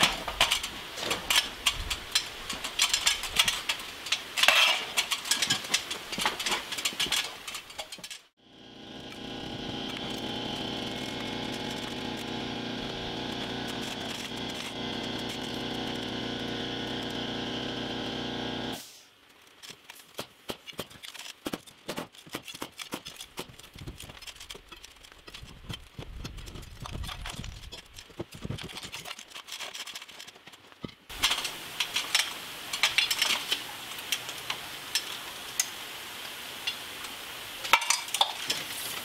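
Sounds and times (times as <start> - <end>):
pneumatic air hammer: 9.0 - 19.0.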